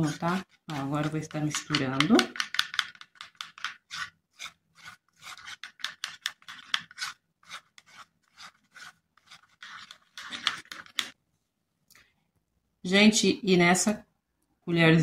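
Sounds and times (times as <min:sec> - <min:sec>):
fingers rubbing cream in plastic bowl: 0:00.0 - 0:11.2.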